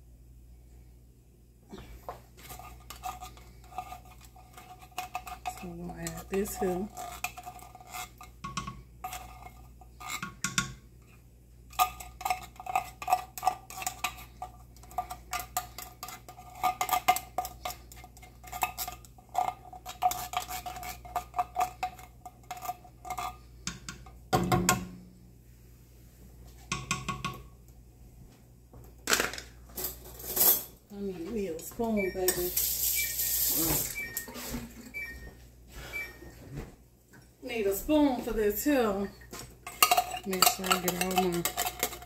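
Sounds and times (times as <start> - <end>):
spatula clinking in tin can: 39.6 - 42.0.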